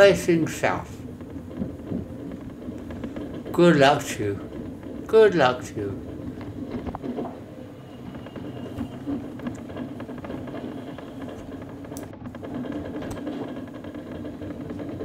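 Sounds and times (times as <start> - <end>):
mobility scooter humming: 6.0 - 15.0.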